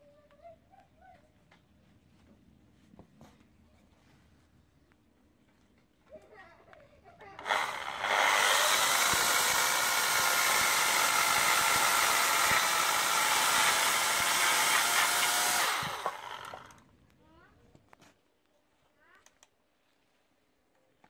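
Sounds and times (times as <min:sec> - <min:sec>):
electric chainsaw cutting wood: 0:07.4 - 0:16.8.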